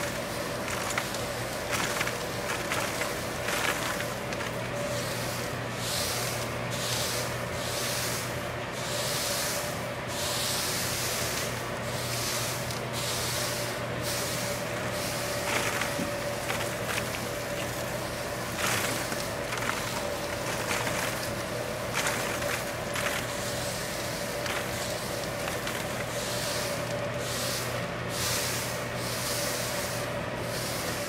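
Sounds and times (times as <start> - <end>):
flower heads rustling on steel tray: 0.0 - 5.1, 14.4 - 27.0
steady hum: 0.0 - 31.0.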